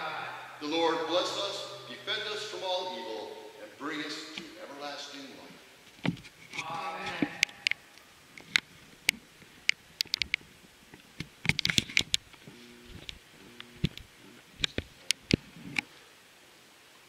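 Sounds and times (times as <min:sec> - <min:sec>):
sharp clicks and light knocks: 0:08.4 - 0:15.9.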